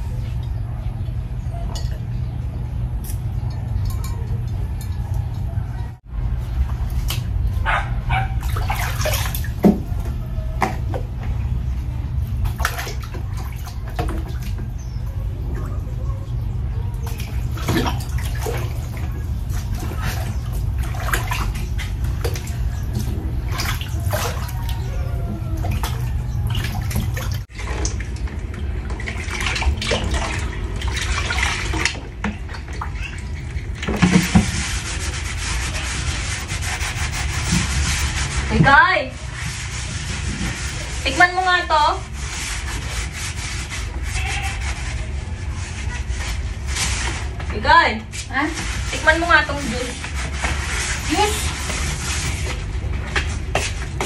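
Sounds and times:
liquid sloshing and splashing: 8.3s - 47.5s, 48.2s - 54.0s
rubbing on cooler lid: 34.0s - 47.4s, 48.3s - 54.0s.

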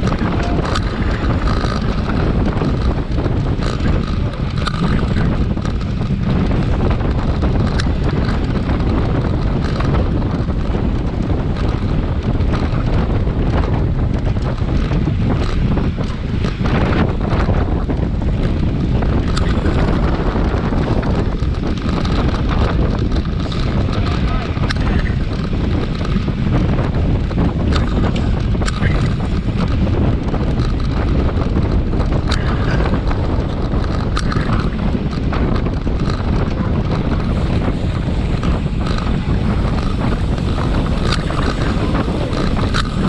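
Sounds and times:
sharp clicks: 0.0s - 11.9s, 19.2s - 26.4s
wind buffeting microphone: 0.0s - 43.0s.

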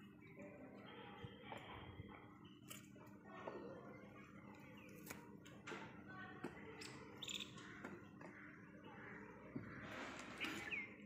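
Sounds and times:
bird chirp: 6.8s - 9.0s, 9.7s - 11.0s.

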